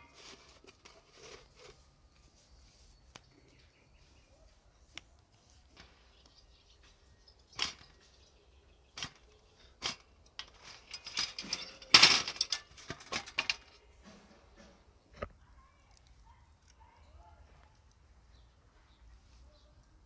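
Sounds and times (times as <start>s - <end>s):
metal rack and tray clinking: 9.8s - 14.7s.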